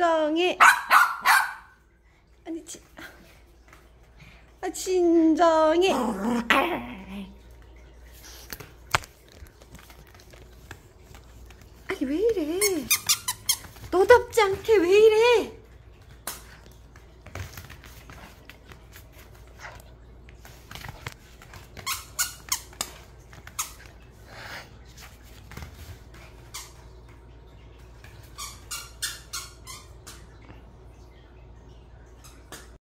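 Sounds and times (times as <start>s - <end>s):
squeaky toy squeaking: 12.6s - 13.7s.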